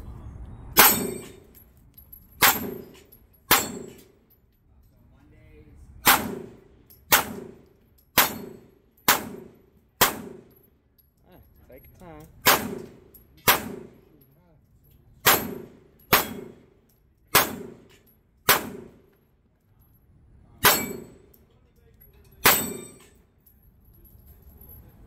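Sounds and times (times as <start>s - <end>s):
pistol shots: 0.8s - 1.4s, 2.4s - 4.0s, 6.0s - 7.6s, 8.2s - 10.5s, 12.4s - 14.0s, 15.2s - 16.6s, 17.3s - 17.9s, 18.5s - 19.0s, 20.6s - 21.2s, 22.4s - 23.0s
steel plate ringing: 0.8s - 1.5s, 2.4s - 4.0s.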